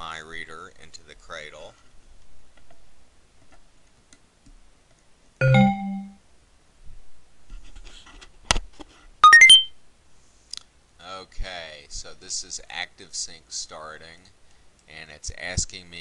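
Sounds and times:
two-note electronic chime: 5.4 - 6.2, 9.2 - 9.7
quick rising chime: 9.2 - 9.7.

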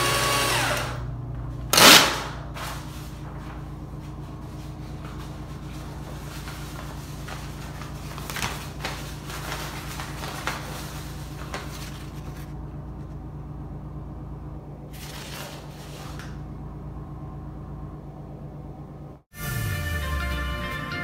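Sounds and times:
paper towel dispenser whirring: 0.0 - 12.6
paper towel rustle: 2.4 - 13.2, 14.9 - 16.4.

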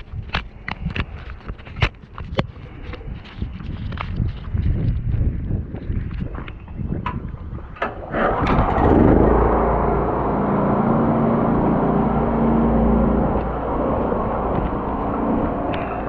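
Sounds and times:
drain jetter engine running: 7.8 - 16.0.

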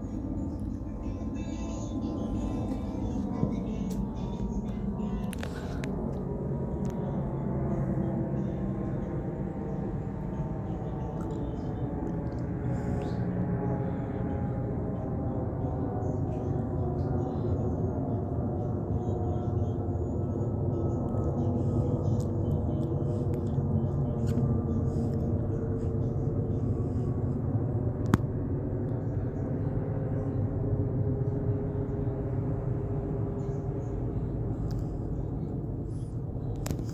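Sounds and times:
jet engines rumbling overhead: 0.0 - 36.9.

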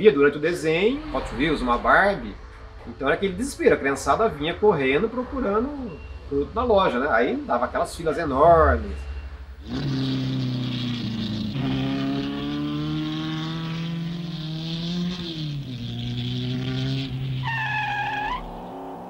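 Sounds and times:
high-pitched squeal: 0.0 - 6.6, 8.1 - 19.0
racing car engine at speed: 9.1 - 19.0.

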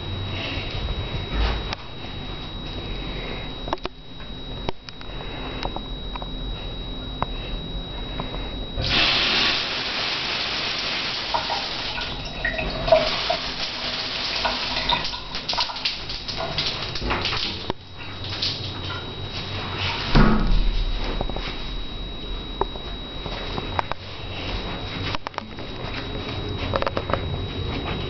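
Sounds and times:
shower water running: 8.8 - 20.8.

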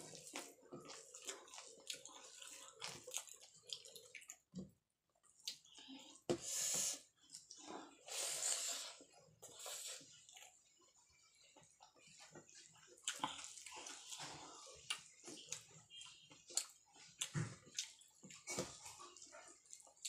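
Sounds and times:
chewing and lip smacks: 0.0 - 4.6, 9.5 - 20.0.

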